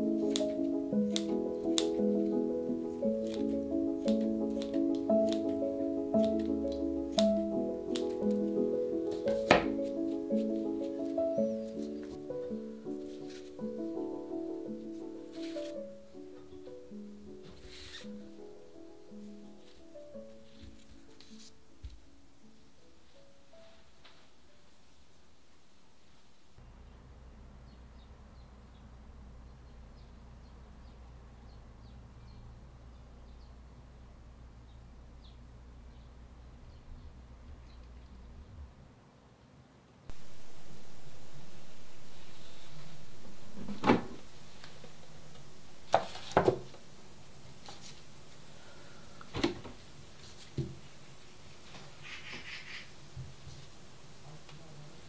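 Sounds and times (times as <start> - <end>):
dried herbs rustling: 0.0 - 14.0, 14.6 - 16.2, 19.1 - 22.0, 40.1 - 49.1, 49.8 - 54.2.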